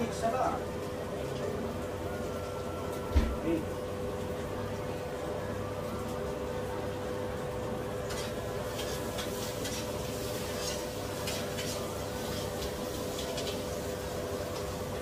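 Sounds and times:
utensil scraping in a pot: 8.0 - 14.8.

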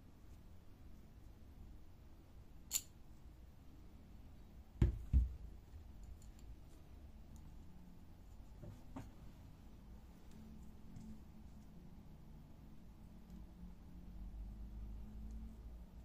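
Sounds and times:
sharp metallic click: 2.7 - 3.0
dull thumps: 4.8 - 5.4.

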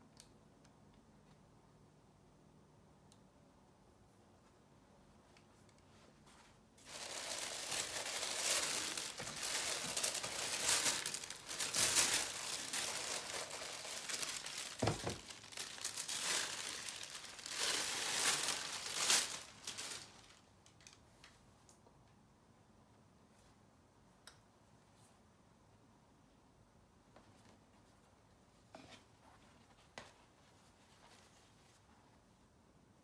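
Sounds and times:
packing paper crinkling: 6.8 - 20.5.

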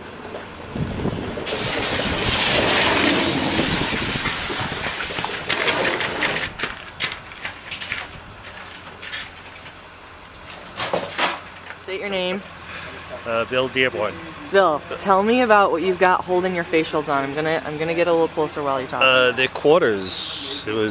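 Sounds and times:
sled clicks and knocks: 1.2 - 9.8
sled runners hissing on ice: 1.4 - 6.6.

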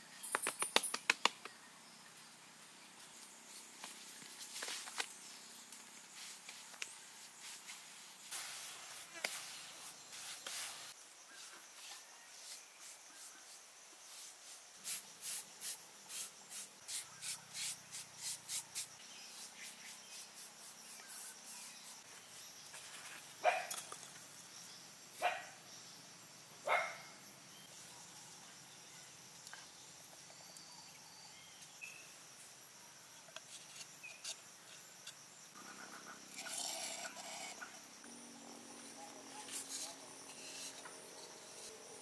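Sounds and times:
puppy barking: 26.7 - 27.1.

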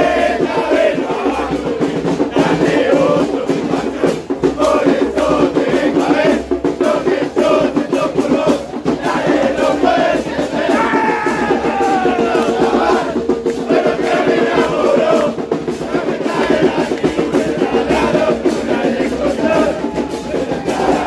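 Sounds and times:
crowd singing a chant: 0.0 - 21.0.

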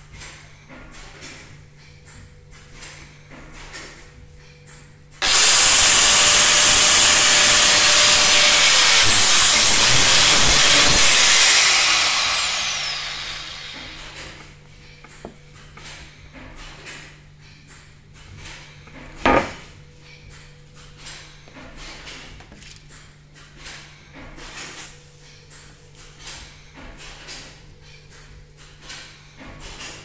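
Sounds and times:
angle grinder grinding steel: 5.2 - 14.3
grinder winding down: 5.2 - 14.4.

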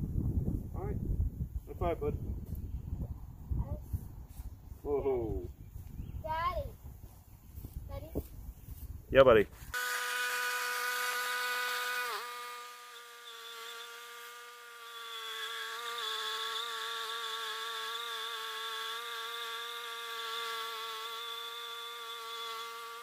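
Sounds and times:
band blade cutting log: 9.7 - 23.0
bandsaw mill whining: 9.7 - 23.0.

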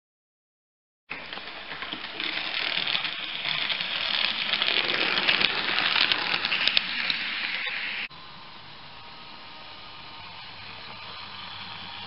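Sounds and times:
model train clattering on track: 1.1 - 7.3.

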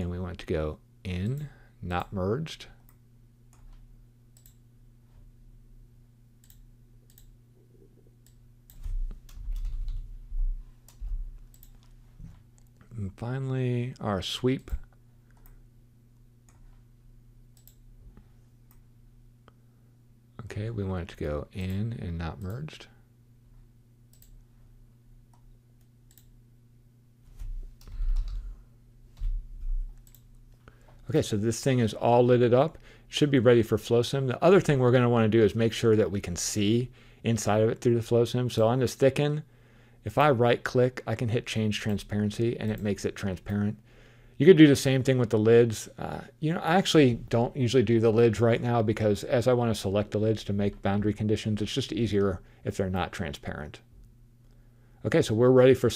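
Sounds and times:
low electrical hum: 0.0 - 55.9
computer mouse clicks: 4.4 - 4.6, 6.4 - 7.3, 10.9 - 11.9, 17.6 - 17.8, 24.1 - 24.4, 25.3 - 26.3, 30.0 - 30.3
keyboard typing: 8.2 - 10.0, 27.8 - 28.5.

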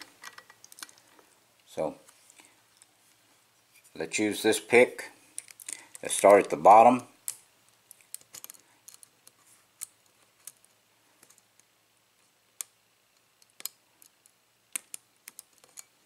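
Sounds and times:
lock pick clicking on padlock pins: 7.2 - 11.4, 12.6 - 16.0.

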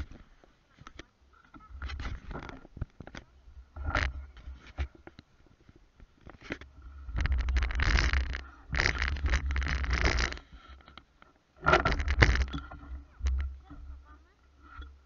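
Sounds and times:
scooter wheels rolling on asphalt: 7.1 - 10.4.

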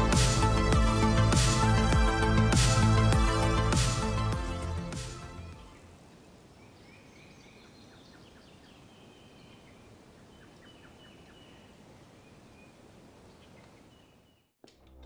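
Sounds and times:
small birds chirping: 5.6 - 14.6.

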